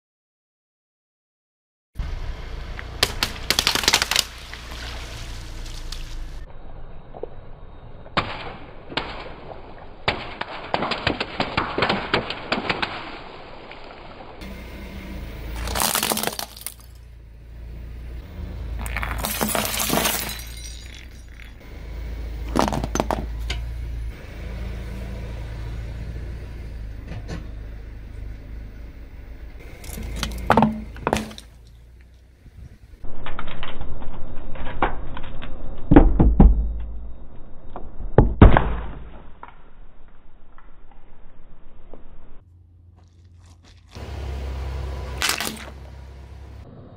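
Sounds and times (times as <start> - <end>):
low car rumble: 2.0 - 9.9, 14.2 - 38.4, 39.4 - 46.9
tyre crushing objects: 15.6 - 17.0, 18.8 - 21.4, 22.5 - 23.3, 29.8 - 31.6, 45.2 - 45.8.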